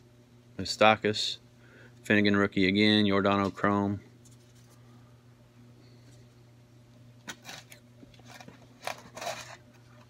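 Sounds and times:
cards rustling and tapping: 7.2 - 10.0.

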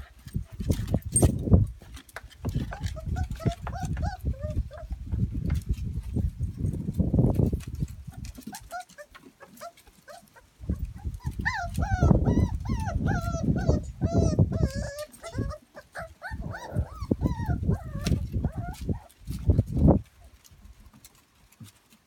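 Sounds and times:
puppies yipping and whining: 2.5 - 5.1, 7.7 - 20.4.

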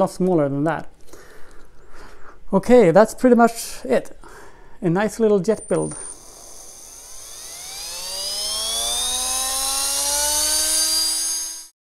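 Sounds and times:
electric motor whine spooling up: 5.6 - 11.8.

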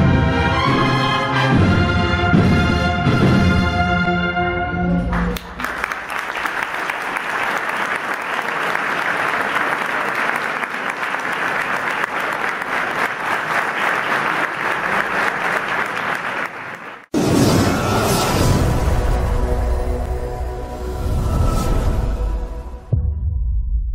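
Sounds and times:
audience applauding: 5.1 - 17.1.

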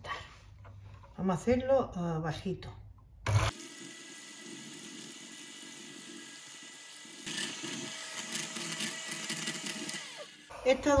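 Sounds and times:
electric hand mixer whining: 3.2 - 11.0.

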